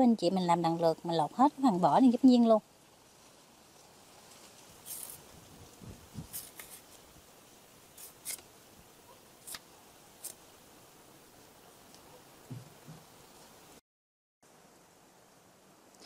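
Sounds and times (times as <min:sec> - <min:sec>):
knife scraping banana peel: 0:04.8 - 0:05.2, 0:06.2 - 0:07.0, 0:08.0 - 0:08.5, 0:09.4 - 0:09.6, 0:10.2 - 0:10.4
soft low knocks: 0:12.5 - 0:13.1.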